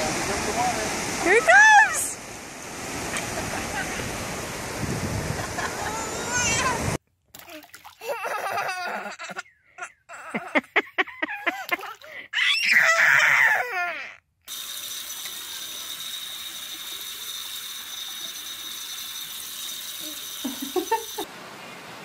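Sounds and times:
toddler laughing and squealing: 5.6 - 7.0, 8.0 - 14.2
faucet running into sink: 14.5 - 21.2.

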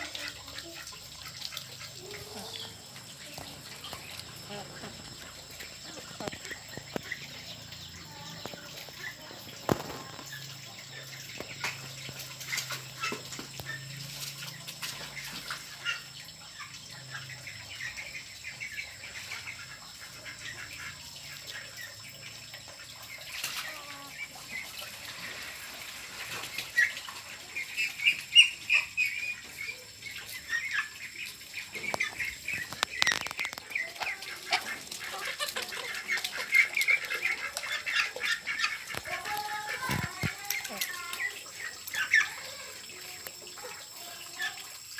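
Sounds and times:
ducks quacking: 0.0 - 13.9, 26.2 - 44.7
chickens clucking: 0.0 - 44.9.

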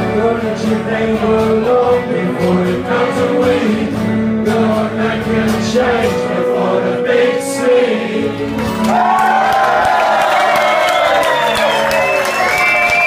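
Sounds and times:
man singing: 0.0 - 8.5
acoustic and electric guitars: 0.0 - 13.0.

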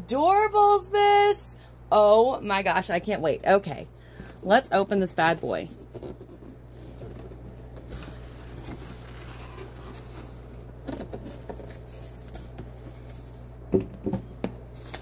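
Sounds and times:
steady low hum: 0.0 - 15.0
cardboard box rustling: 5.8 - 13.2.

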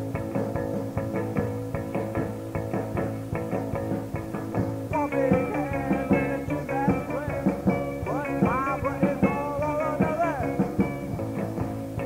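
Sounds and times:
punk band music: 0.0 - 12.0
tape hiss: 0.0 - 12.0.

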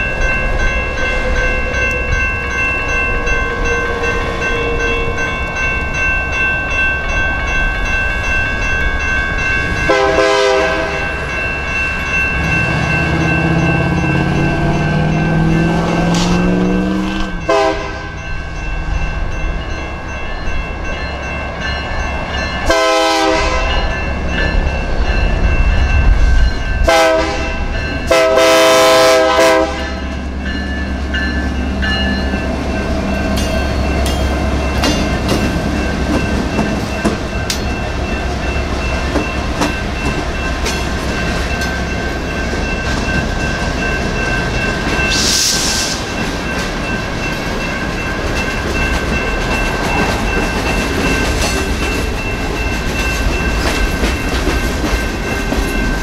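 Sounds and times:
crossing bells ringing: 0.0 - 56.0
locomotive horn blasts: 9.9 - 11.2, 15.3 - 18.2, 22.7 - 23.7, 26.8 - 30.0.

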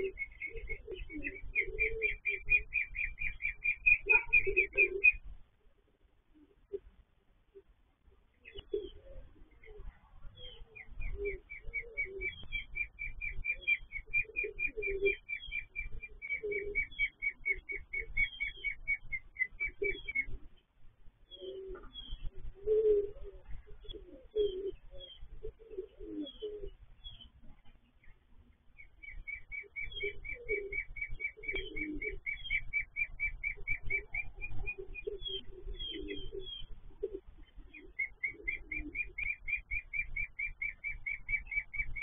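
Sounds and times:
bird chirping high: 0.0 - 5.2, 10.4 - 20.3, 23.8 - 42.0
pigeons cooing: 0.0 - 20.6, 21.3 - 42.0.

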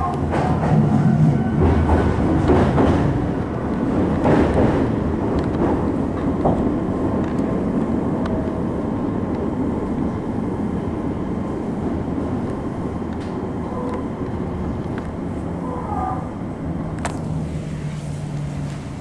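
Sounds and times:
train wheels rumbling on rail: 0.0 - 19.0
faint clicks: 12.5 - 15.2.

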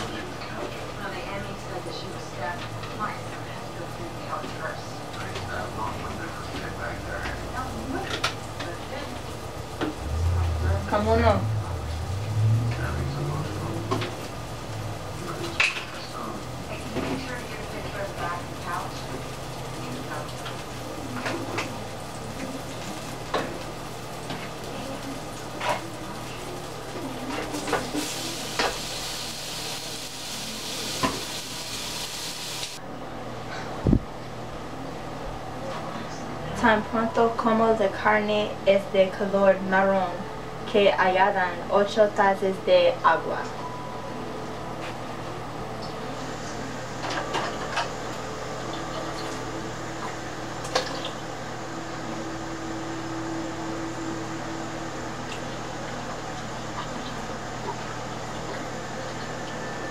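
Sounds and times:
room hum: 0.0 - 59.9
meat sizzling in hot oil: 11.8 - 32.8.

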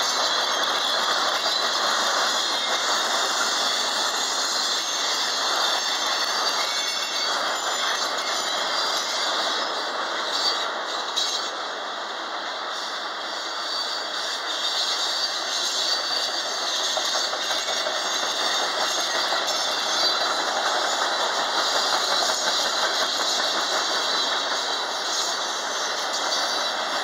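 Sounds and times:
steel wheels on rail: 0.0 - 27.0.

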